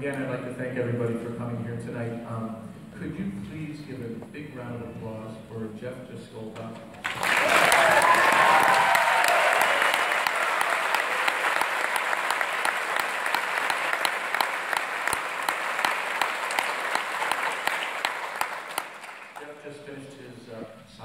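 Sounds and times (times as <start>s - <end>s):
audience applauding: 7.0s - 19.5s.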